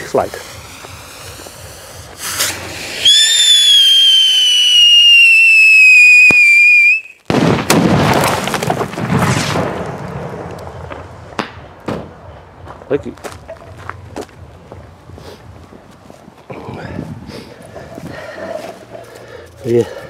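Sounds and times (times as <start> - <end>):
firework whistling: 0.0 - 7.3
firework crackling rush: 0.0 - 13.1.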